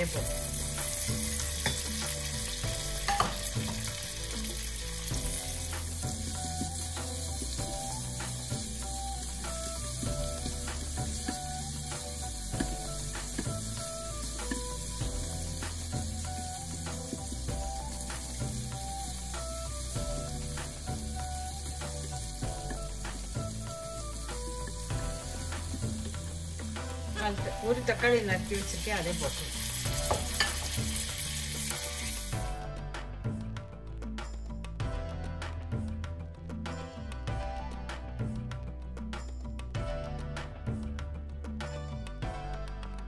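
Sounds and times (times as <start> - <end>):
onions sizzling in hot oil: 0.0 - 32.6.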